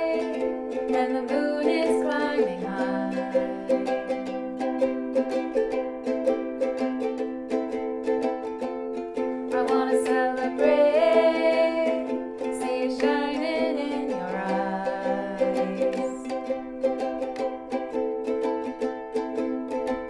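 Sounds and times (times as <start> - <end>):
people singing: 0.0 - 4.0, 9.5 - 16.4
ukuleles strumming: 0.0 - 20.0.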